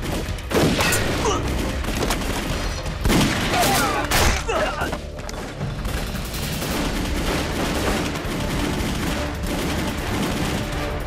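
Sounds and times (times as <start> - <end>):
rifle shots: 6.1 - 11.0.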